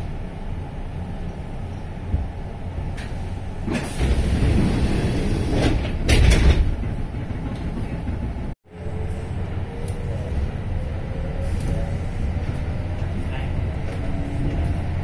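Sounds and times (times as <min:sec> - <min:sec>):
low hum of stopped train: 0:00.0 - 0:15.0
pneumatic train doors opening: 0:02.9 - 0:06.7.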